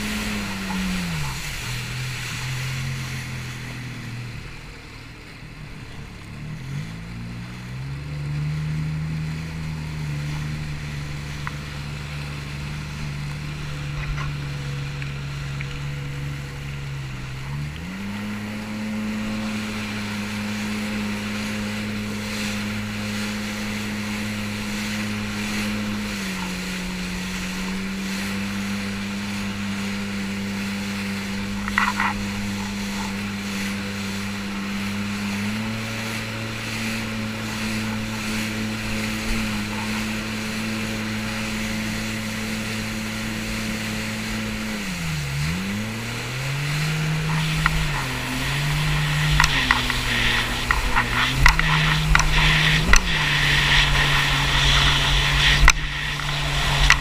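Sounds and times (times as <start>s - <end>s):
water rushing: 0.0s - 57.0s
watercraft engine running: 0.0s - 57.0s
wind rushing: 46.8s - 57.0s.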